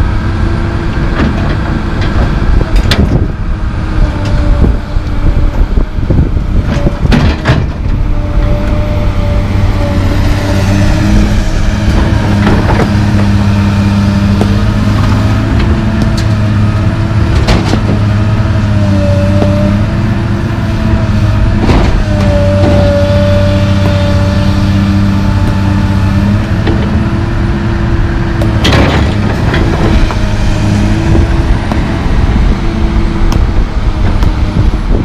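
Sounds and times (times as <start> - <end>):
excavator diesel engine working: 0.0 - 35.0
hydraulic whine: 0.0 - 35.0.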